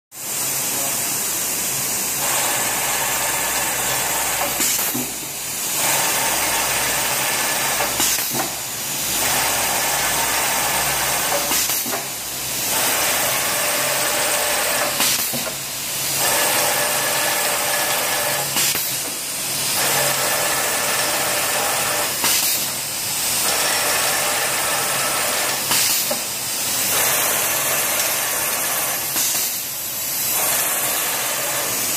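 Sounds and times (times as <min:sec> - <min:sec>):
machine motor whir and hiss: 0:00.2 - 0:31.9.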